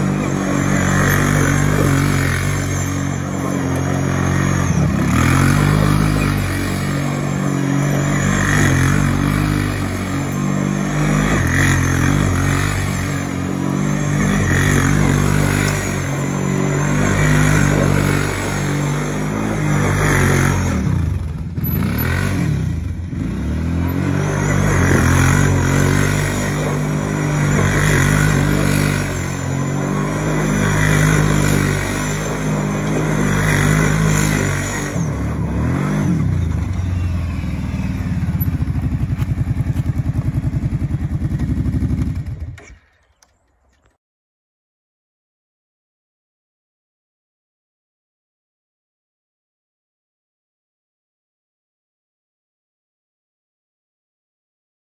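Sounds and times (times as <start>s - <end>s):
quad bike engine revving: 0.0s - 43.9s.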